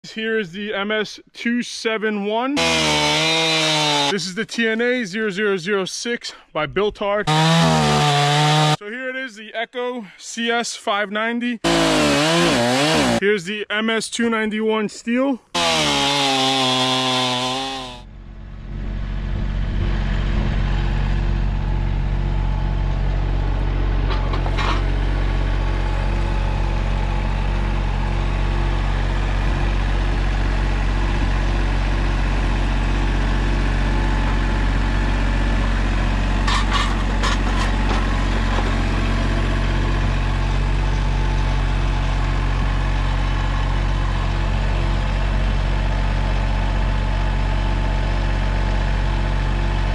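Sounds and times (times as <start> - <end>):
chainsaw cutting log: 2.6 - 4.2, 7.3 - 8.8, 11.6 - 13.2, 15.5 - 18.1, 36.4 - 39.0
tractor diesel engine running: 16.7 - 49.9.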